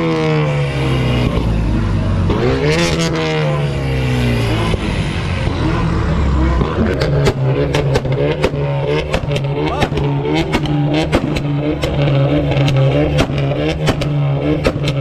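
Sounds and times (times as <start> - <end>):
car engine droning: 0.0 - 15.0
exhaust pops and bangs: 6.8 - 15.0.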